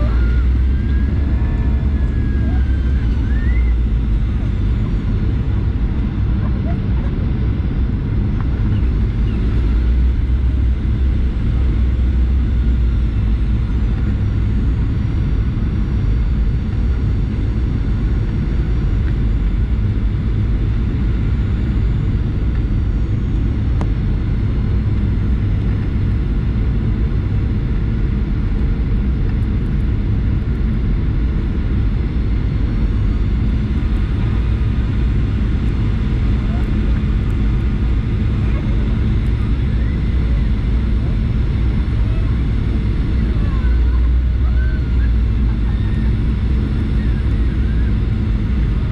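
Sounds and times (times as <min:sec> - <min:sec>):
faint high whining tones: 0:00.0 - 0:06.0
jet engines rumbling in cabin: 0:00.0 - 0:48.9.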